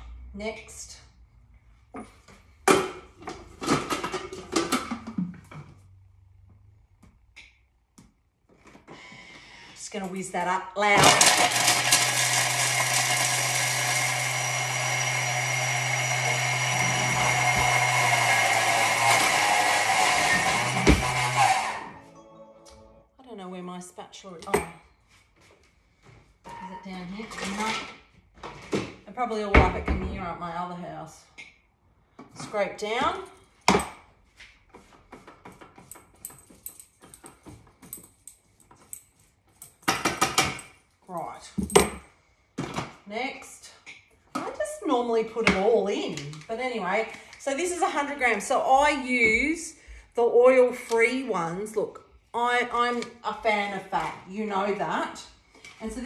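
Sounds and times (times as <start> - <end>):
food processor whirring: 11.0 - 22.0.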